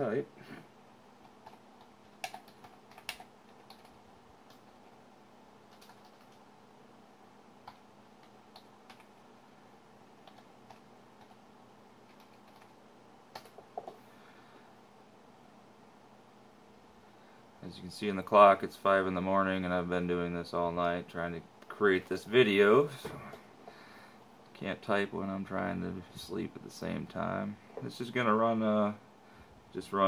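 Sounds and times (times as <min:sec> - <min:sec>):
faint steady hum: 0:00.0 - 0:30.0
keyboard keys clicking: 0:01.4 - 0:04.7, 0:05.7 - 0:06.4, 0:12.1 - 0:12.7.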